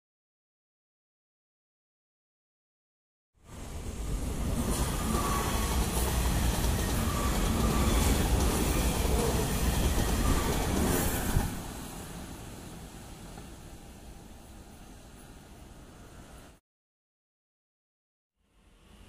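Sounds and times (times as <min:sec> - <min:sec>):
train wheels rumbling on rails: 0:03.5 - 0:13.7.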